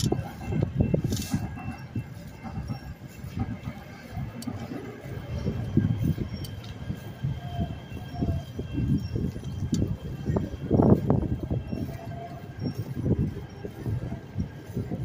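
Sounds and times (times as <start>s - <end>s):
bicycle tyres rolling on asphalt: 0.0s - 15.0s
wind rumbling on microphone: 0.0s - 15.0s.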